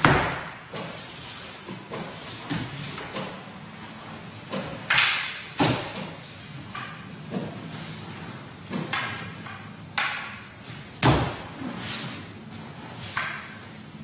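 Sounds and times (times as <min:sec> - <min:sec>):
wooden swords clacking: 0:04.5 - 0:07.7, 0:08.7 - 0:12.2.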